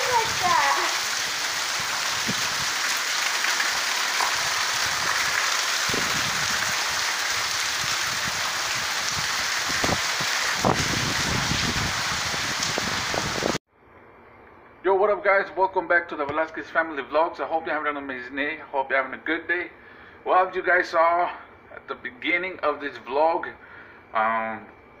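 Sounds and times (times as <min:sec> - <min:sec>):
heavy rain on concrete: 0:00.0 - 0:13.6.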